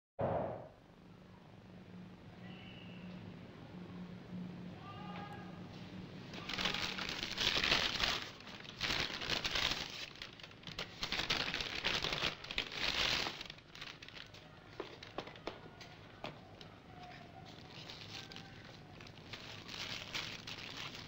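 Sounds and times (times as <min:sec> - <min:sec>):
paper bag rustling and crinkling: 0:06.3 - 0:21.0.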